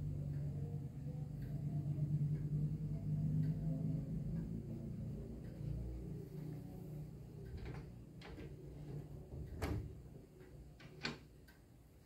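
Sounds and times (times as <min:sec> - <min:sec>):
clock glass door clicks and knocks: 0:07.5 - 0:11.6.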